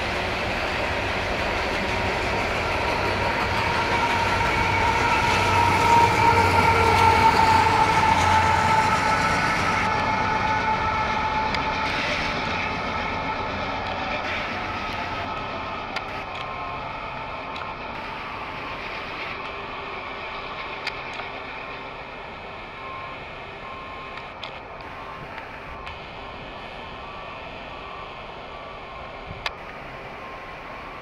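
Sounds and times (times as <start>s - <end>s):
high squeal of train wheels: 0.0s - 26.0s
freight train rolling on rails: 0.0s - 31.0s.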